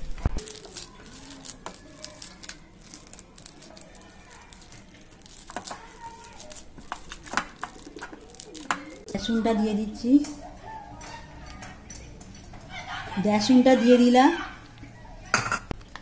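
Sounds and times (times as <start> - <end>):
hand squishing banana: 0.4 - 9.1.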